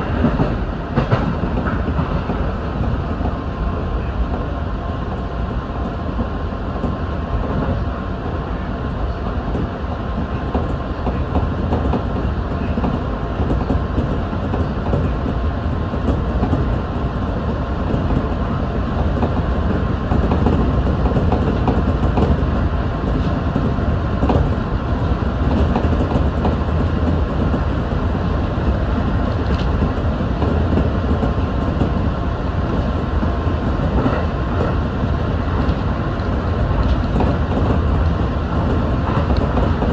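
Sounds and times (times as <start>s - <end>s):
train wheels rumbling on rail: 0.0s - 39.9s
clicks over rail joints: 9.5s - 32.0s.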